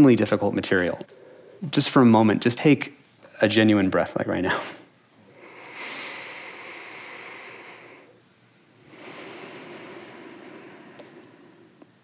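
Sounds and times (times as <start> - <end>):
person breathing deeply: 1.0 - 1.7, 5.2 - 8.2, 8.8 - 12.0.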